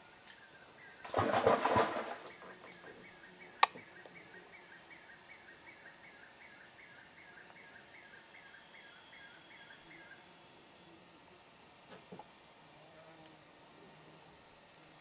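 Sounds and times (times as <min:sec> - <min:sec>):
high-pitched insect chorus: 0:00.0 - 0:15.0
soft insect chirp: 0:00.0 - 0:15.0.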